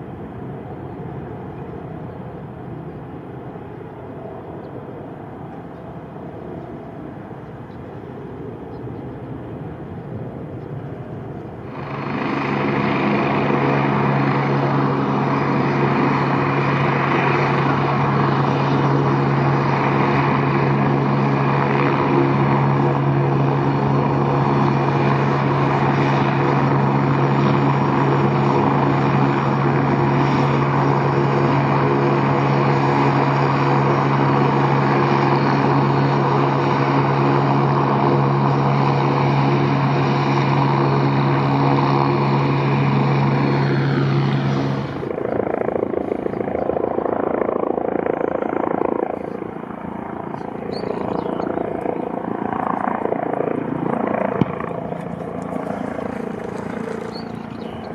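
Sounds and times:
aircraft engine hum: 0.0s - 57.9s
rough wavering aircraft rumble: 0.0s - 57.9s.

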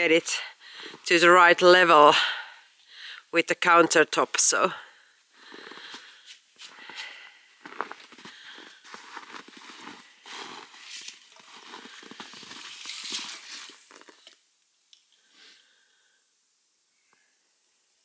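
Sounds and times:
crunching in snow: 5.4s - 14.3s.

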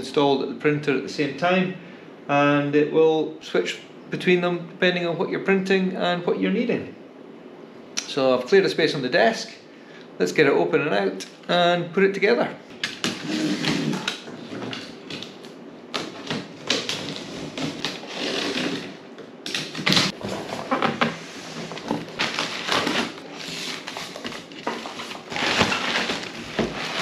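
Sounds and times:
cardboard flaps scraping: 13.0s - 19.0s, 19.6s - 27.0s
plastic packing crinkling: 13.0s - 19.0s, 19.6s - 27.0s.

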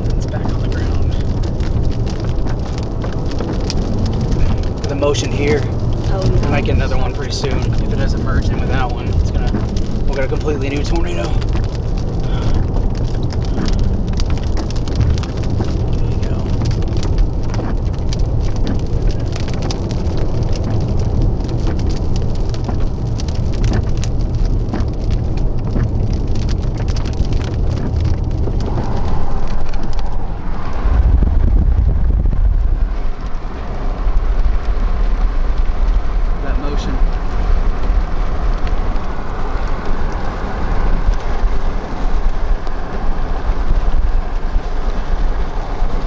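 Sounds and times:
low rumble of storm wind: 0.0s - 46.0s
rain pelting a vehicle: 0.0s - 46.0s.

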